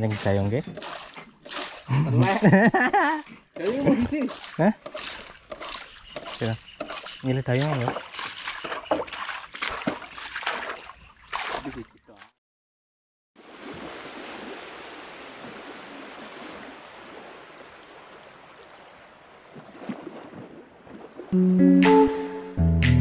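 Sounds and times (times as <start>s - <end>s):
paddle strokes splashing: 0.0s - 12.3s, 13.4s - 21.4s
water rushing past canoe: 3.6s - 11.8s, 13.4s - 21.4s.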